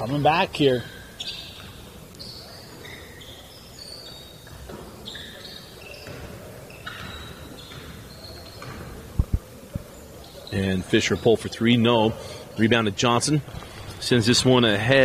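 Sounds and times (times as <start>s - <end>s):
shoes squeaking on wooden floor: 0.0s - 11.3s.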